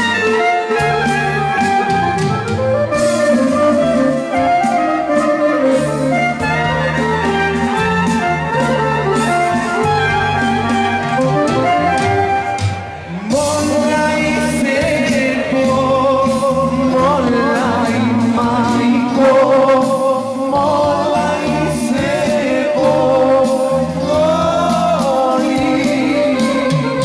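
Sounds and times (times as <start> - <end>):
drum kit and bass: 0.0 - 27.0
wind instrument melody: 0.0 - 27.0
man singing with vibrato: 13.0 - 27.0.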